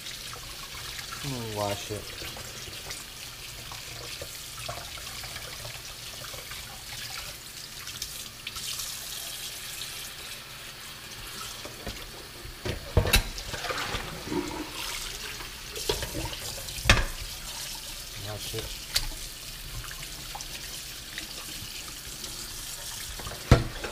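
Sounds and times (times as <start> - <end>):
tap water running into pot: 0.0 - 23.9.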